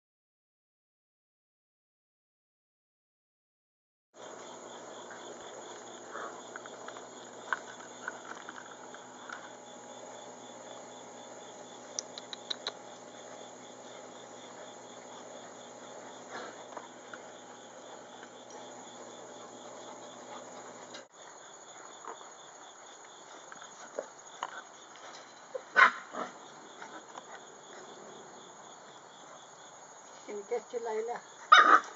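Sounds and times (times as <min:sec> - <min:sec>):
insects chirring: 0:04.2 - 0:31.9
sharp clicks: 0:11.9 - 0:12.8.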